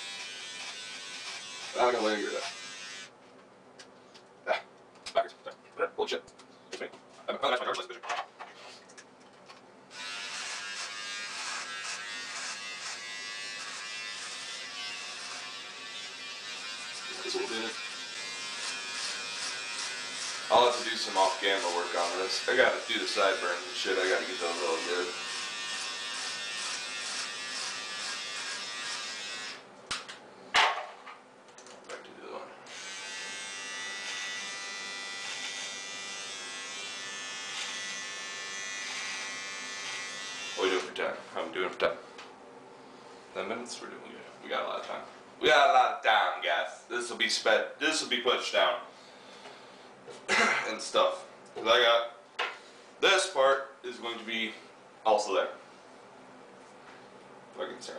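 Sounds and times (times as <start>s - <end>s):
beard trimmer buzzing: 0.0s - 3.1s, 9.9s - 29.6s, 32.7s - 41.0s.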